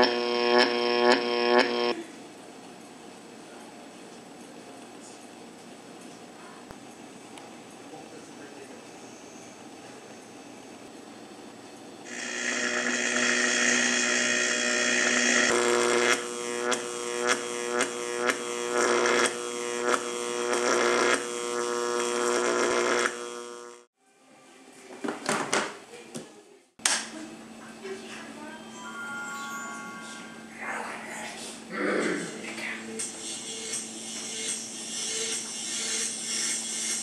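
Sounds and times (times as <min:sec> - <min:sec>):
electric hum and buzz: 0:00.0 - 0:02.0, 0:10.6 - 0:23.9, 0:30.4 - 0:37.0.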